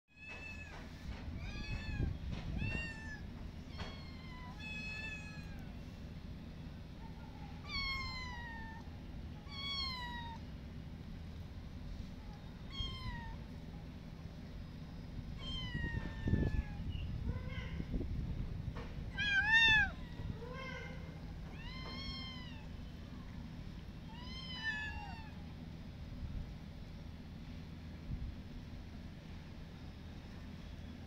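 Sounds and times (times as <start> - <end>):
low background rumble: 0.2 - 31.0
kittens meowing: 1.4 - 5.8, 7.6 - 10.4, 12.6 - 13.5, 15.4 - 17.9, 19.1 - 22.9, 24.1 - 25.5.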